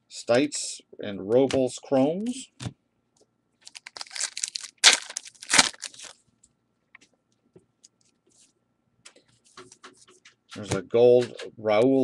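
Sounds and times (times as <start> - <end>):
wrapper crinkling rips: 3.6 - 6.2.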